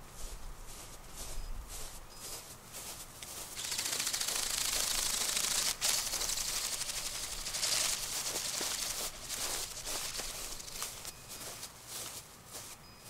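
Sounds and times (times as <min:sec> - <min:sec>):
flapping-wing drone wings clattering: 0:03.4 - 0:11.2.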